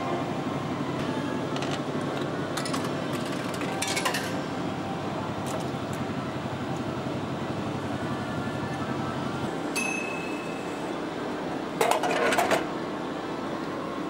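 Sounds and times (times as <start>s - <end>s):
steady machine hum: 0.0s - 14.0s
coins clinking in vending machine: 2.5s - 4.4s.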